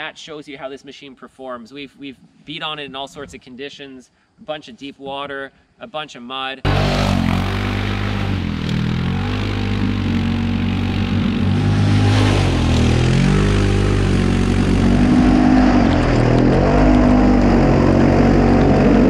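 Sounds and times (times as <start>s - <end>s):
atv engine revving: 6.7s - 19.0s.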